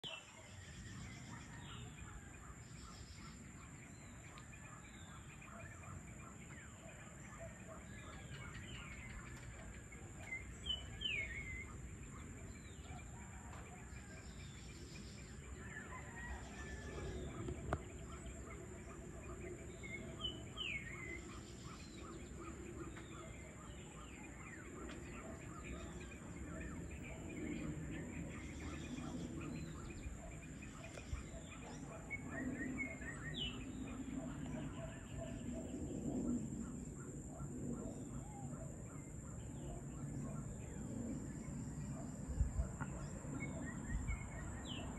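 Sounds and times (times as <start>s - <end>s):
birds chirping: 0.0s - 44.9s.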